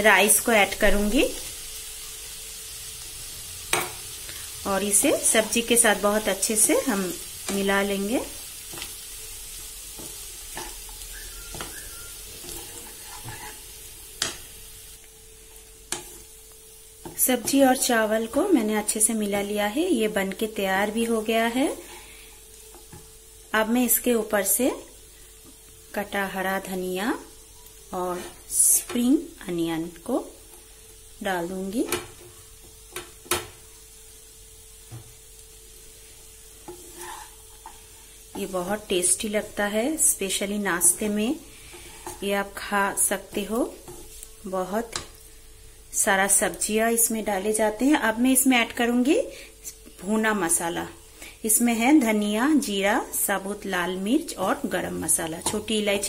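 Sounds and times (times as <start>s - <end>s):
frying sizzle: 0.0s - 56.0s
spatula knocking pan: 9.9s - 13.6s
wooden spatula scraping pan: 9.9s - 13.8s, 36.6s - 38.5s, 40.8s - 42.4s.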